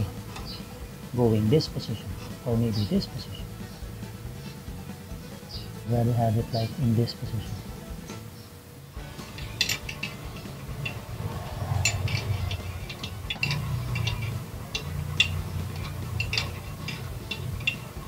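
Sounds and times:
low steady rumble: 9.2s - 18.0s
ratcheting wrench clicking: 9.2s - 18.0s.

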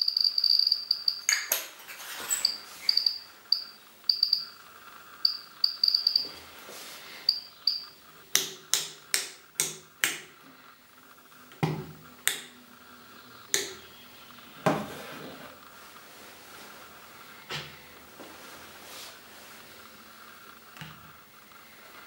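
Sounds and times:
dosimeter high-pitched chirps: 0.0s - 1.5s, 2.4s - 4.6s, 5.2s - 6.4s, 7.1s - 8.0s.

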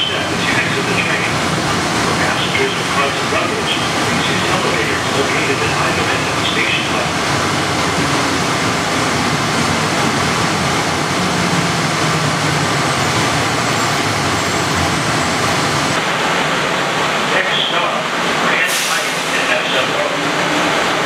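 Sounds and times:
train car rolling noise: 0.0s - 21.0s.

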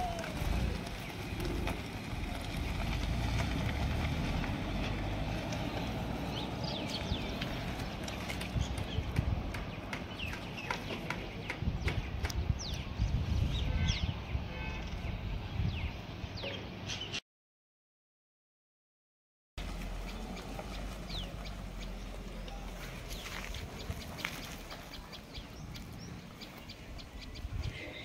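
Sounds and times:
birds chirping: 0.0s - 3.0s, 4.4s - 17.2s, 19.6s - 28.0s
car driving on dirt road: 0.0s - 10.8s, 19.6s - 27.5s.

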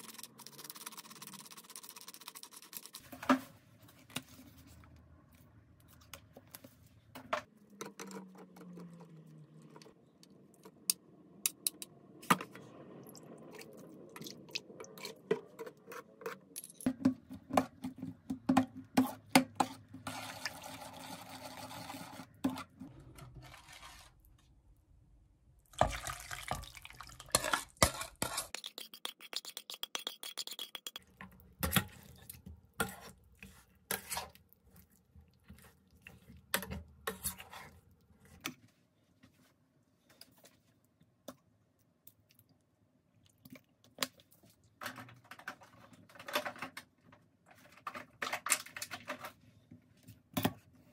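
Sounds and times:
liquid sloshing: 25.6s - 32.4s.

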